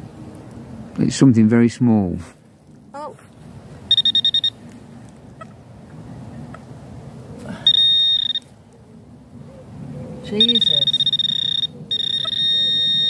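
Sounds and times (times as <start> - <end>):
metal detector alert tone: 3.9 - 4.6, 7.7 - 8.4, 10.4 - 13.0.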